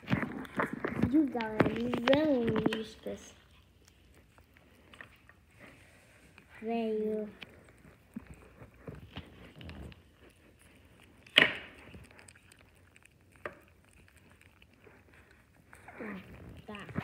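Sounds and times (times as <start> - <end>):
kittens crunching dry kibble: 0.0 - 17.0.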